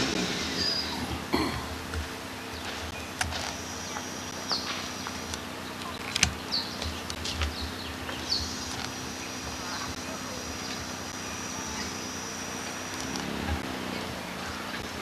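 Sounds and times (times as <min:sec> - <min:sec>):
bird chirps: 0:00.3 - 0:01.2, 0:02.2 - 0:13.1.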